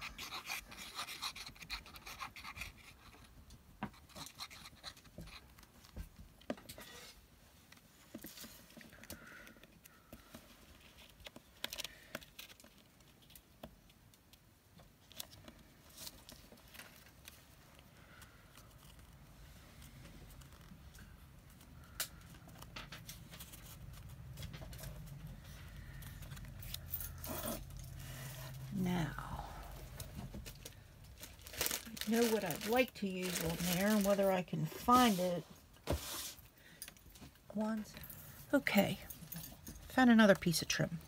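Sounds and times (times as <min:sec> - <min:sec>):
paper rustling: 0:30.3 - 0:35.2.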